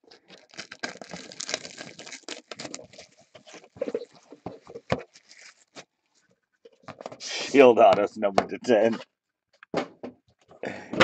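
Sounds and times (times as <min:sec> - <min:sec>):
cardboard box handling noise: 0:00.3 - 0:05.8.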